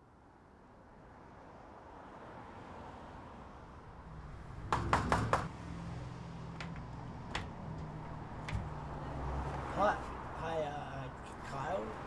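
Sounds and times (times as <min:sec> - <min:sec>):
knocking on mesh screen door: 0:04.7 - 0:05.5, 0:06.6 - 0:08.8.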